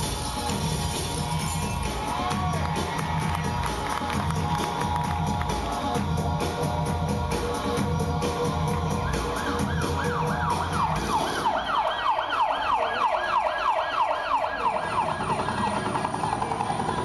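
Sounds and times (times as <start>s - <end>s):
music over loudspeakers: 0.0s - 17.0s
siren wail sound effect: 8.9s - 17.0s.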